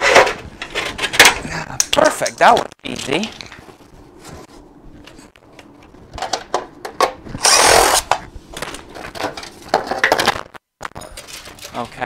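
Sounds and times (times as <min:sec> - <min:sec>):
cordless drill running: 0:07.4 - 0:08.1.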